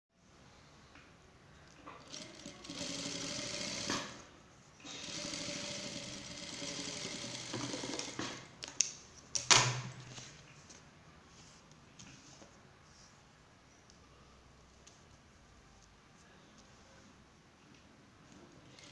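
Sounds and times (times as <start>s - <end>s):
sewing machine stitching: 1.9s - 8.5s, 18.7s - 18.9s.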